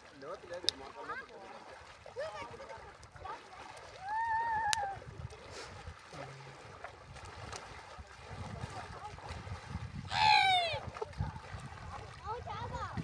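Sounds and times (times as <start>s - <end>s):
water lapping on shore: 0.0s - 13.0s
wind rumble on microphone: 4.0s - 13.0s
loud shouted call: 10.1s - 10.8s.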